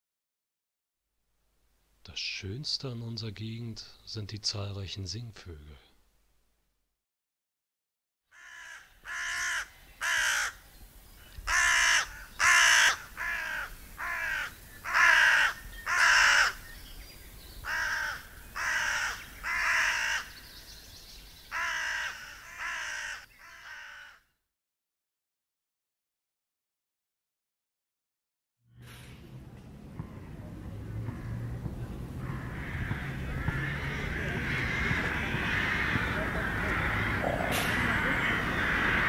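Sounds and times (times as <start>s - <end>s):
crows cawing: 8.3s - 10.6s, 11.4s - 16.6s, 17.6s - 20.6s, 21.5s - 24.3s, 31.0s - 39.0s.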